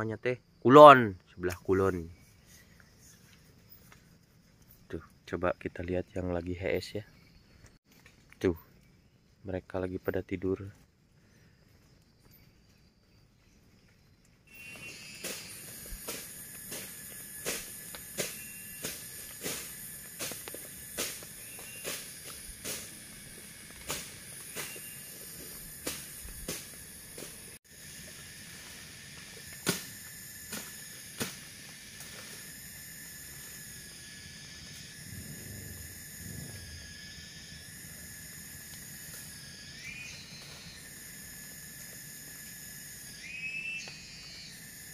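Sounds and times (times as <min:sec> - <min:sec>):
steady high hiss: 0:14.5 - 0:44.9
machete chopping undergrowth: 0:14.6 - 0:27.6, 0:29.1 - 0:32.5.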